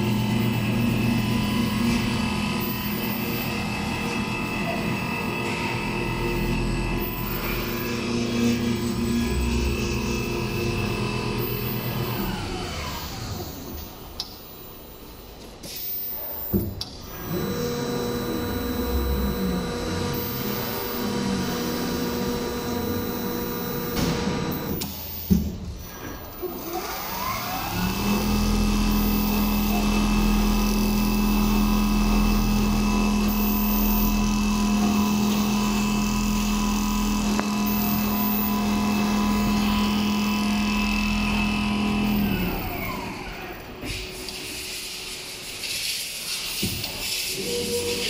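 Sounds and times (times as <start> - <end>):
sewing machine humming: 17.1 - 24.8, 26.4 - 44.2.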